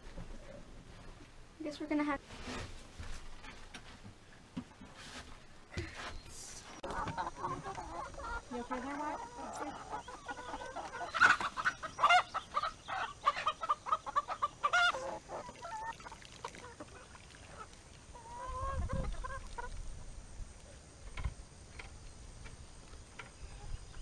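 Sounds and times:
chickens clucking: 0:05.8 - 0:24.0.

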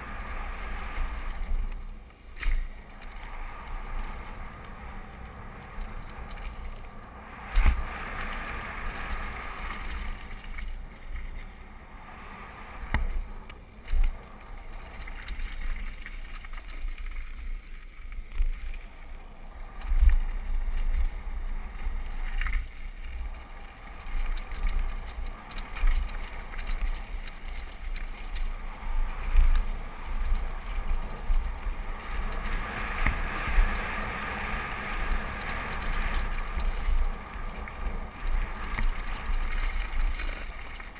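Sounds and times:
wind buffeting microphone: 0:17.6 - 0:40.9.

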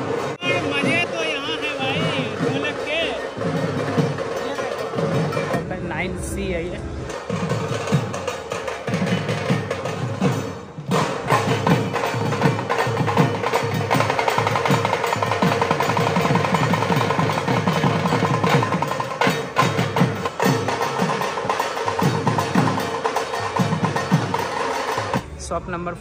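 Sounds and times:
steady metallic ringing: 0:00.7 - 0:10.9
deep drums beaten with sticks: 0:01.9 - 0:25.6.

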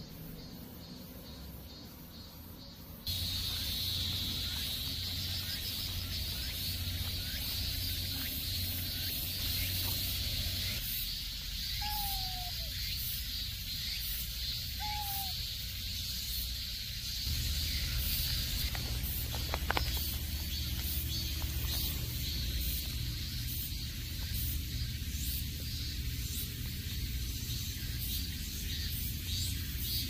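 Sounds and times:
steady high hiss: 0:01.7 - 0:30.0.

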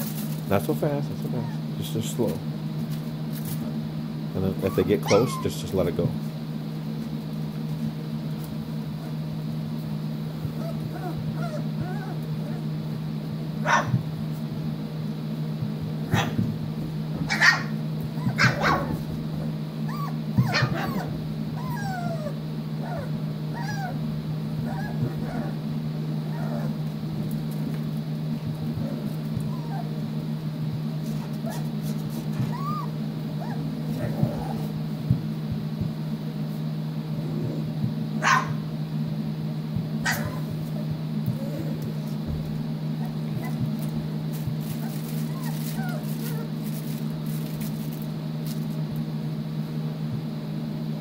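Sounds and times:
steady low hum: 0:00.0 - 0:51.0
puppies whining and yipping: 0:01.2 - 0:01.7, 0:04.5 - 0:05.8, 0:10.4 - 0:12.8, 0:17.3 - 0:19.1, 0:19.8 - 0:26.9, 0:28.8 - 0:30.1, 0:31.0 - 0:34.8, 0:40.0 - 0:42.2, 0:43.0 - 0:43.7, 0:44.7 - 0:46.7
puppy yelps: 0:04.6 - 0:05.6, 0:10.6 - 0:12.7, 0:13.6 - 0:13.9, 0:17.3 - 0:19.0, 0:19.9 - 0:24.0, 0:24.6 - 0:25.6, 0:26.3 - 0:26.8, 0:29.4 - 0:29.9, 0:31.2 - 0:31.7, 0:32.4 - 0:34.6, 0:38.2 - 0:38.6, 0:40.0 - 0:40.6, 0:44.8 - 0:46.5.

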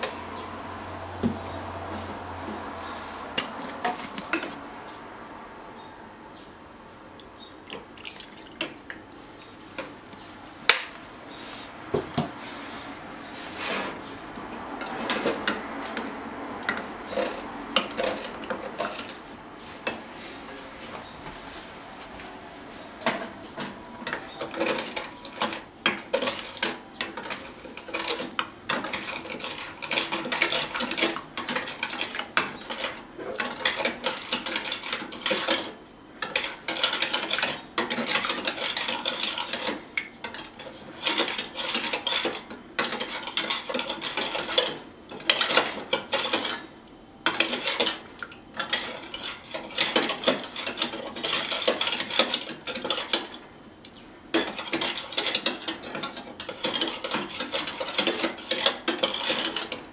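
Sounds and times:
spoon scraping plastic cup: 0:23.6 - 0:46.6.

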